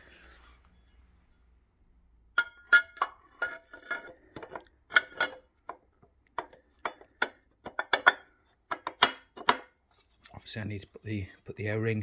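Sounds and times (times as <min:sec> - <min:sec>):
metal bracket clinking and knocking: 0:02.3 - 0:09.8.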